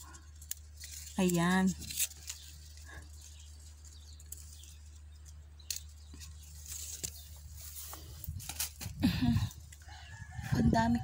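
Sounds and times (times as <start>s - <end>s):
low steady rumble: 0.0s - 11.0s
sharp click of branches: 0.3s - 7.4s, 8.2s - 9.0s.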